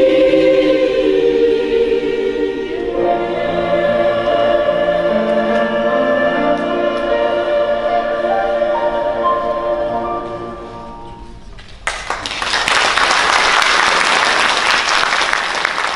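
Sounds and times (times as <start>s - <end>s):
choir holding chord: 0.0s - 11.3s
audience applause: 11.8s - 15.9s.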